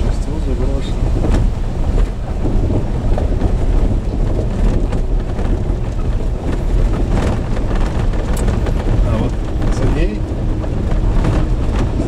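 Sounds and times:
engine and tyres rumbling: 0.0s - 12.0s
gravel crackles: 0.0s - 12.0s.

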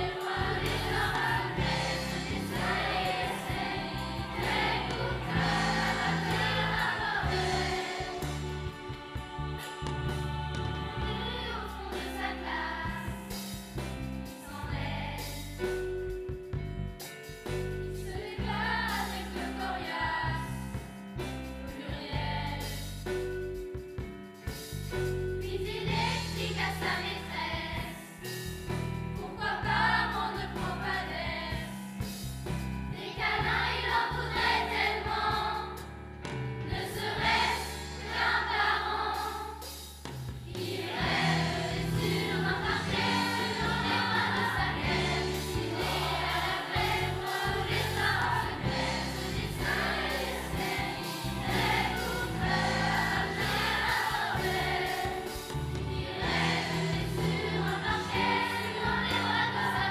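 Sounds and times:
children's choir singing: 0.0s - 13.5s, 14.4s - 15.4s, 18.1s - 20.6s, 25.6s - 28.0s, 29.2s - 31.8s, 32.9s - 35.9s, 36.7s - 39.9s, 40.5s - 59.9s
steady bass line: 0.0s - 19.5s, 40.3s - 59.9s.

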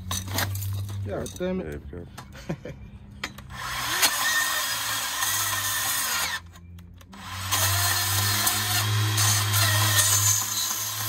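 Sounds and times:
bandsaw cutting metal tube: 3.5s - 6.4s, 7.2s - 11.0s.

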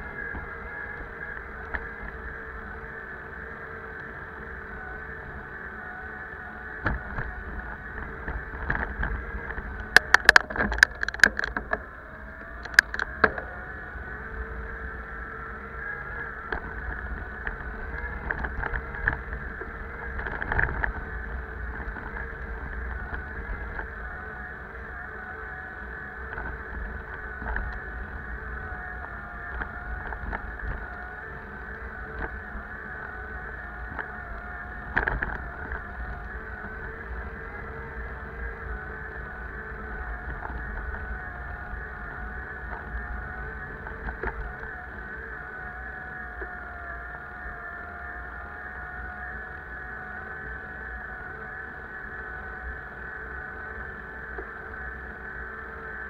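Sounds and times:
bicycle whirring hum: 0.0s - 56.0s
sharp clicks and knocks: 8.6s - 11.8s, 12.6s - 13.5s.

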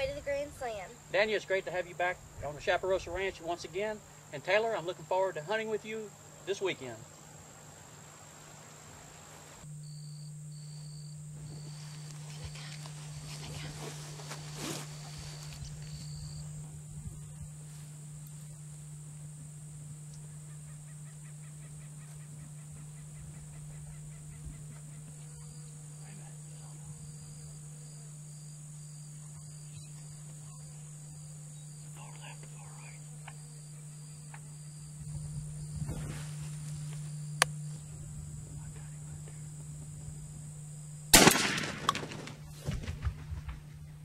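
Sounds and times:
insect buzz: 0.0s - 44.0s
shotgun blast: 41.1s - 42.5s.

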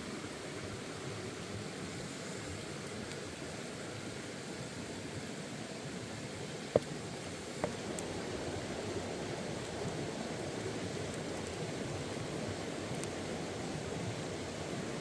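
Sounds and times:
octopus sizzling on hot stone: 6.5s - 15.0s.

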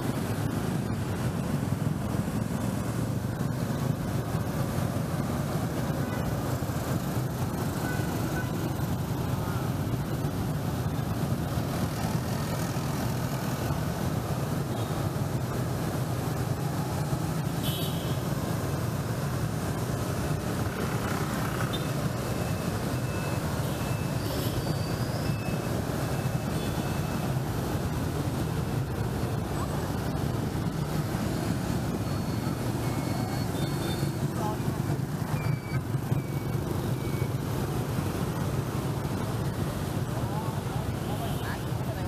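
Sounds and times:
road traffic hum: 0.0s - 42.0s
faint high beeps: 21.7s - 27.2s, 31.9s - 34.6s, 35.2s - 37.4s.

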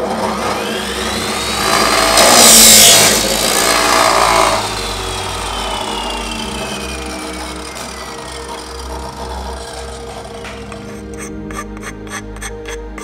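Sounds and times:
chop saw motor whine: 0.0s - 13.0s
saw disc grinding through tube: 0.0s - 13.0s.

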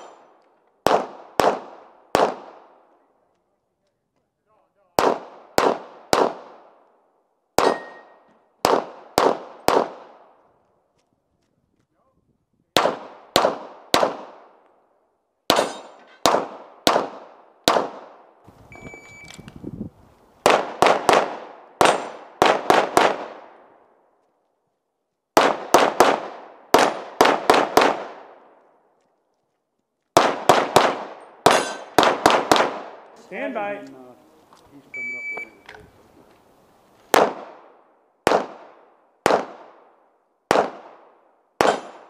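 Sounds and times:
pistol shots with echo: 0.0s - 3.0s, 4.9s - 6.9s, 7.6s - 10.4s, 12.7s - 14.6s, 15.5s - 18.4s, 20.4s - 23.7s, 25.4s - 28.6s, 30.2s - 33.1s, 37.1s - 42.0s.

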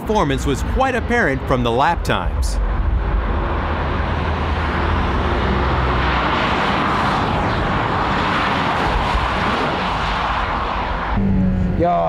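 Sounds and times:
sports cars passing: 0.0s - 11.8s
wind and tyres whooshing: 2.1s - 11.2s.

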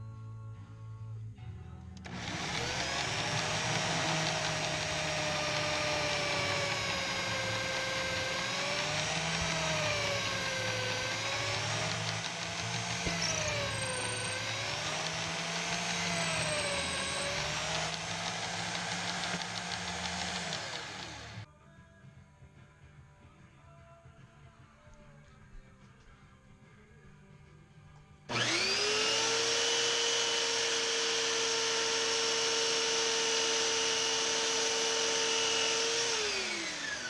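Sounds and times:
electric drill boring into wood: 2.0s - 21.5s, 28.3s - 37.0s.

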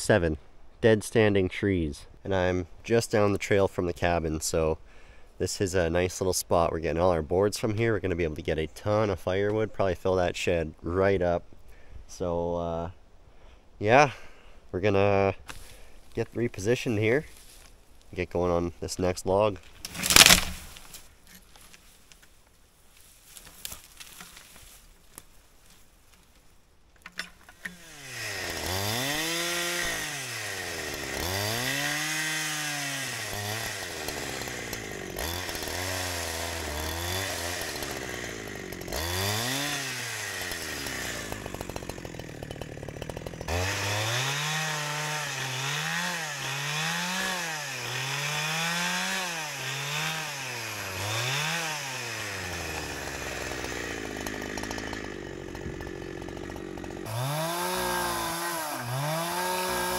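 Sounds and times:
chainsaw ripping a log: 19.6s - 21.9s, 23.0s - 26.4s, 27.1s - 59.9s.

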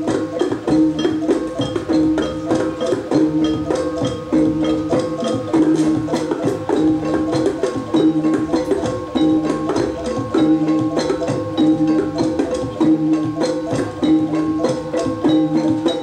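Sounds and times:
barrel drum beat: 0.0s - 16.0s.

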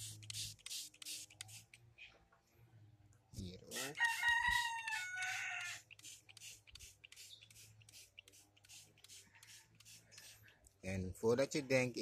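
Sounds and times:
spray bottle hisses: 0.0s - 1.8s, 4.5s - 10.5s
rooster crowing: 3.8s - 5.8s.

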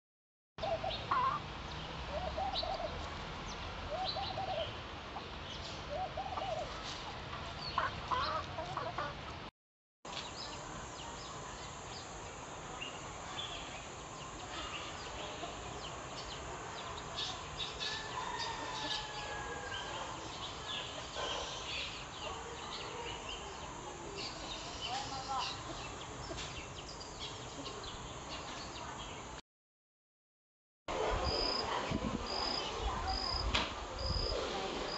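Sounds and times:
hens clucking: 7.7s - 9.4s
small birds chirping: 10.1s - 29.4s.

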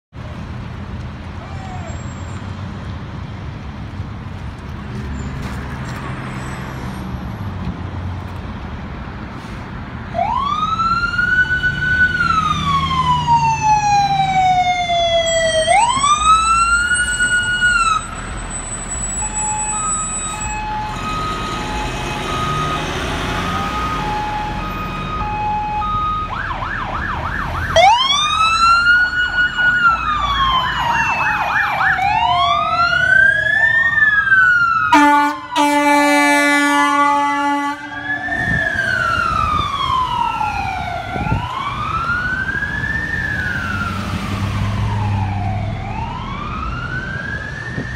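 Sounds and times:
idling traffic rumble: 0.1s - 47.9s
emergency vehicle sirens: 0.2s - 4.4s, 9.4s - 47.9s
air horn blast: 34.9s - 38.0s.

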